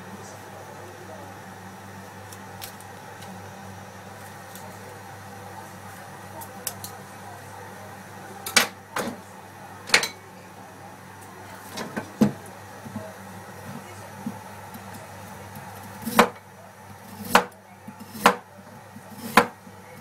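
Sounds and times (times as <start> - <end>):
sharp knocks on cutting board: 18.2 - 18.4, 19.3 - 19.6.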